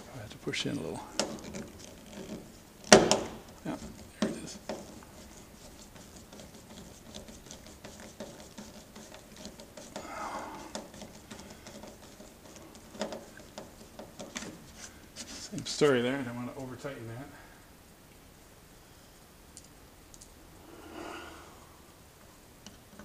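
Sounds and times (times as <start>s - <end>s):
screw turning scratchy ticks: 1.2s - 3.0s, 10.7s - 14.4s.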